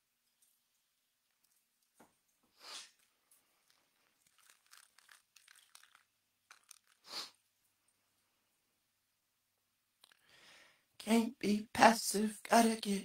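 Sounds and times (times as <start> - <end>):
faint rustling and clicking: 0.0 - 8.3
short hissing rustles: 6.5 - 7.4.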